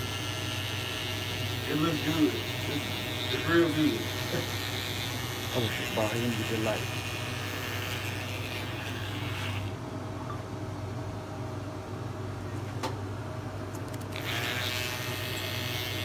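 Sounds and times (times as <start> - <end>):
electric hair clippers humming: 0.0 - 9.8, 13.9 - 16.0.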